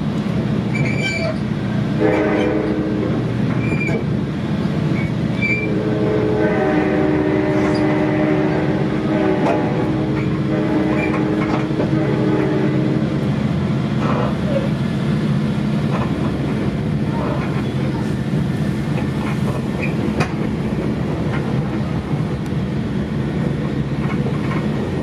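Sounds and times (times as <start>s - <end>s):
train wheels rumbling: 0.0s - 25.0s
muffled locomotive horn: 2.0s - 3.3s, 5.4s - 13.2s.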